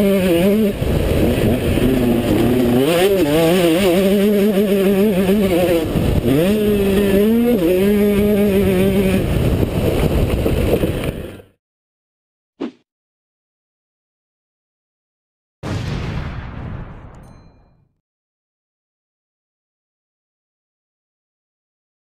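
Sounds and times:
motocross bike engine revving: 0:00.0 - 0:11.4.

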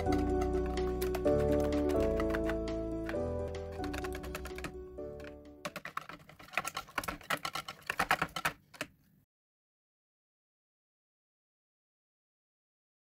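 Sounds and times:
whisk clicking against a bowl: 0:00.0 - 0:04.7, 0:05.6 - 0:08.9
background music: 0:00.0 - 0:05.9.

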